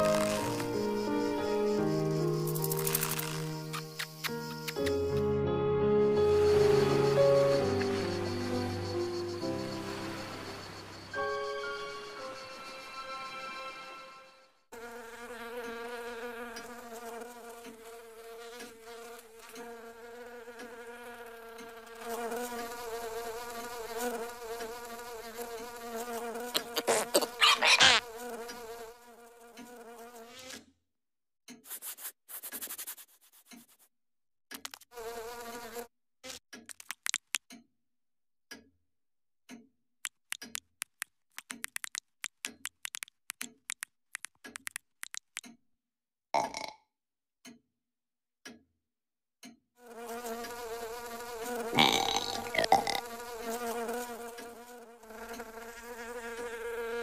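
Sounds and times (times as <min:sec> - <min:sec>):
cartoon fly buzzing: 0:00.0 - 0:05.3, 0:14.7 - 0:30.5, 0:40.0 - 0:45.4, 0:49.8 - 0:57.0
loud crackling clicks: 0:36.6 - 0:37.5, 0:40.0 - 0:45.5
rapid ticks: 0:36.7 - 0:37.5, 0:40.0 - 0:45.5.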